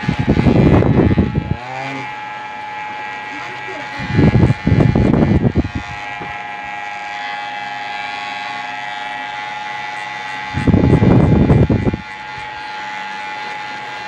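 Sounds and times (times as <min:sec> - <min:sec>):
electric hair clipper humming: 0:00.0 - 0:14.0.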